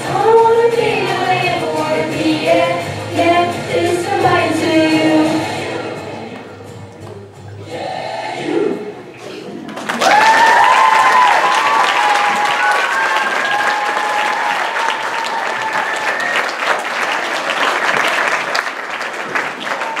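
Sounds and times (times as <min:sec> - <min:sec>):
audience clapping: 0:09.6 - 0:20.0
high cheering voices: 0:09.8 - 0:18.5.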